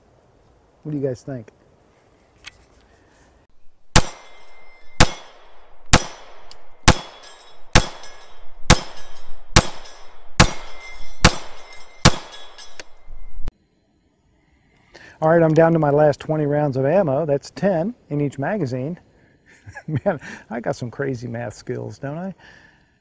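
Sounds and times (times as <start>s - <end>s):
pistol shots: 3.9s - 12.6s
metallic ring of steel target: 3.9s - 13.5s.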